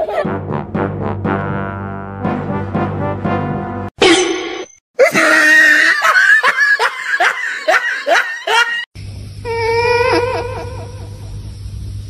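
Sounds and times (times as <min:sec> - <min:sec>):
person laughing: 0:05.0 - 0:08.9, 0:09.9 - 0:11.3.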